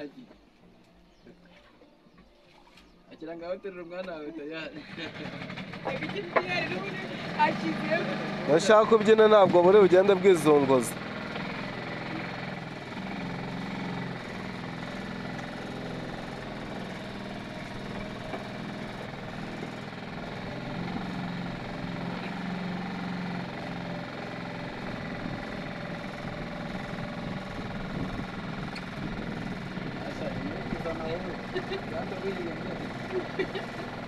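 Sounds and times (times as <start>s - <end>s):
boat motor humming: 4.8s - 34.0s.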